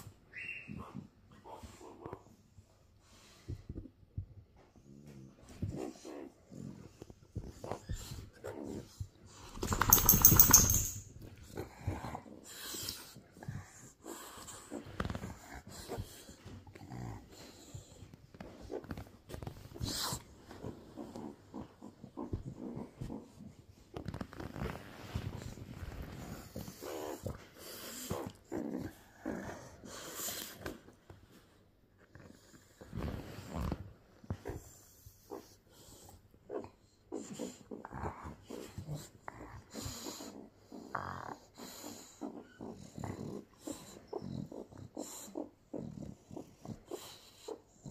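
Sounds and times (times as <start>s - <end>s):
bulldog grunting and snorting: 36.5s - 47.9s.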